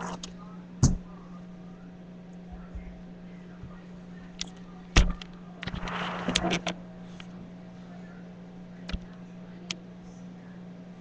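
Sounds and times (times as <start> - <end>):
low electrical hum: 0.0 - 11.0
rustling and scraping: 5.6 - 7.9.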